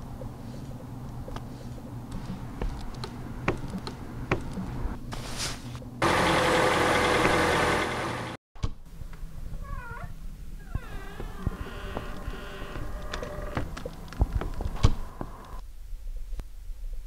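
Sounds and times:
vehicle engine idling: 6.0 - 8.4
clicks and knocks of people climbing: 10.8 - 15.6.

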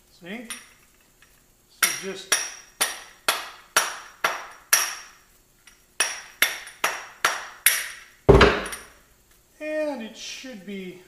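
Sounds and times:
heavy thump: 8.3 - 8.9.

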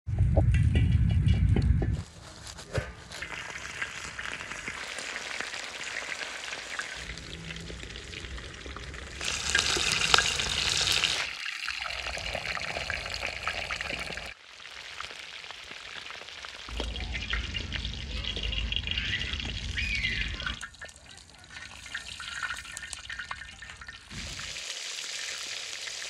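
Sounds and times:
meat sizzling in hot fat: 3.1 - 26.0.

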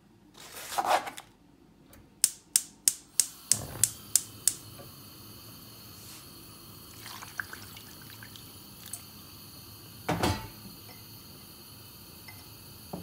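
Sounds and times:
water pouring and splashing: 6.8 - 9.1.

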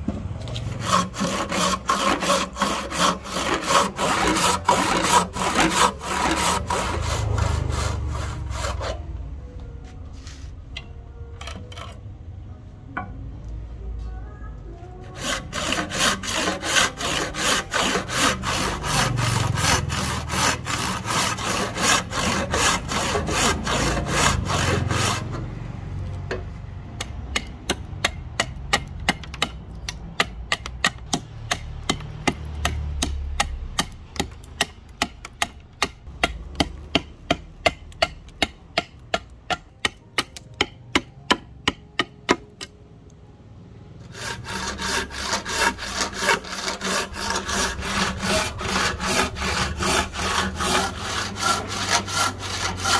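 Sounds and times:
hand saw cutting wood: 0.4 - 9.1, 15.1 - 25.5, 44.0 - 52.9.

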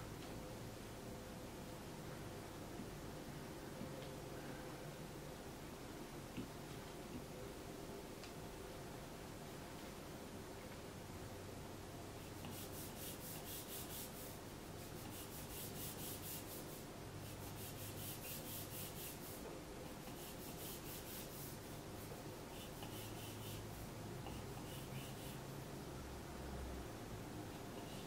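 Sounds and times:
stylus scratching on glass screen: 12.4 - 25.5.

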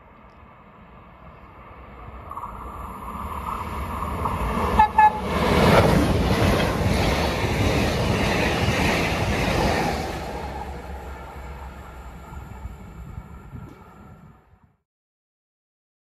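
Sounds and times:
train passing at speed: 0.0 - 14.7
wheels rushing on rails: 0.1 - 14.7
train horn toots: 4.7 - 5.4.

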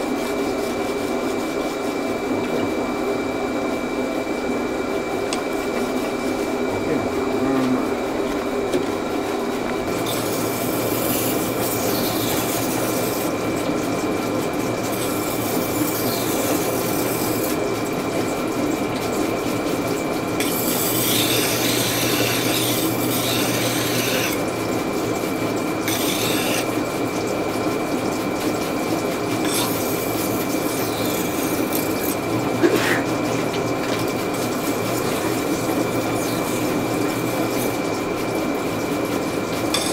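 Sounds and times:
grinding wheel motor hum: 2.2 - 39.9
steel grinding on stone: 10.0 - 13.3, 14.9 - 17.6, 20.4 - 24.4, 25.8 - 26.8, 29.4 - 32.2, 39.7 - 39.9.

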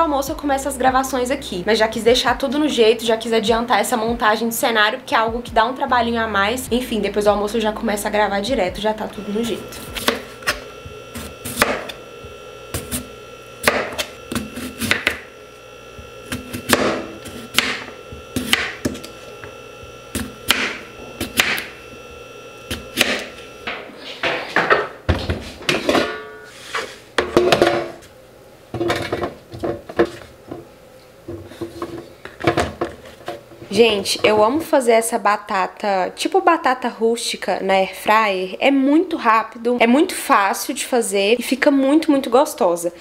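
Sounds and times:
knife slicing potato: 9.8 - 12.0, 18.4 - 19.2.

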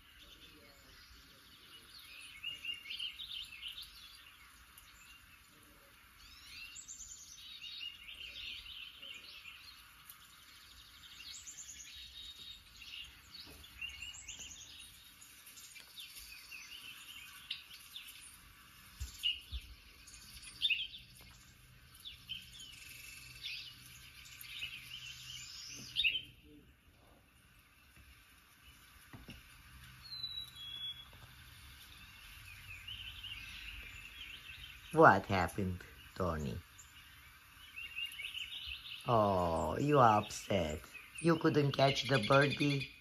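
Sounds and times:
birdsong through tv speakers: 0.0 - 43.0.

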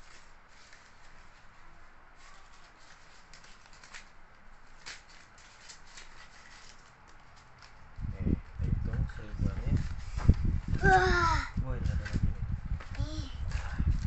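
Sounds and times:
banknotes rustling: 0.0 - 10.4.

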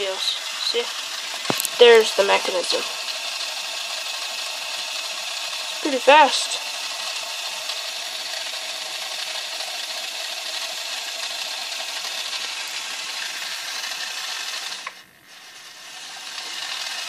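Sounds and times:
toy motor gears whirring: 0.0 - 17.0.

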